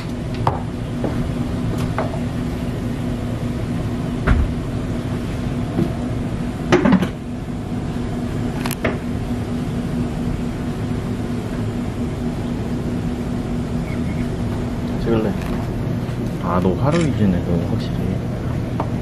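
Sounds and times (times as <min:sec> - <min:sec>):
restaurant room hum: 0:00.0 - 0:19.0.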